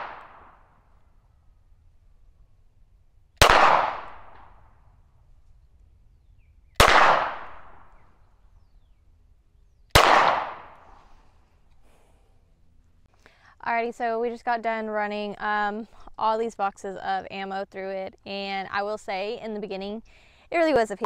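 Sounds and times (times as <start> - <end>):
pistol shots: 3.4 - 4.6, 6.8 - 7.9, 9.9 - 10.9.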